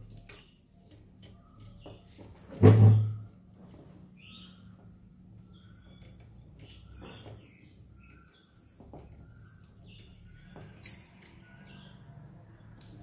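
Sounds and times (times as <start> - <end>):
screwdriver clicks and squeaks: 6.9 - 7.8, 8.5 - 9.5, 10.8 - 11.4.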